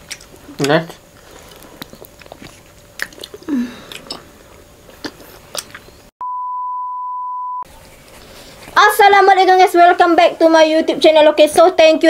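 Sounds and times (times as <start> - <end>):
chewing honeycomb: 0.0 - 6.0
test-tone beep: 6.2 - 7.6.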